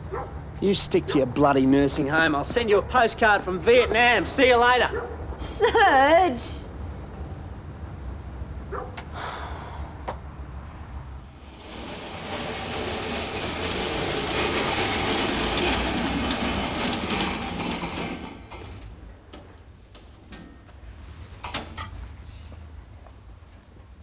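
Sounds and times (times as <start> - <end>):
metal trolley rattling with pans: 11.3 - 19.1.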